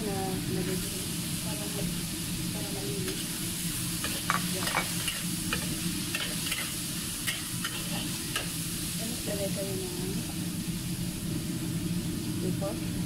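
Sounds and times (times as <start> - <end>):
meat and peppers sizzling in wok: 0.0 - 13.0
metal spatula scraping wok: 4.0 - 8.6.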